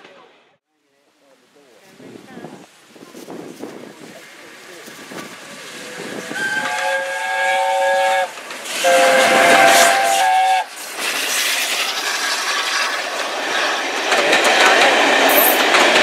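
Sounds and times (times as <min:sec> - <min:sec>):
train passing at speed: 0:03.1 - 0:16.0
steam locomotive whistle: 0:05.7 - 0:10.8.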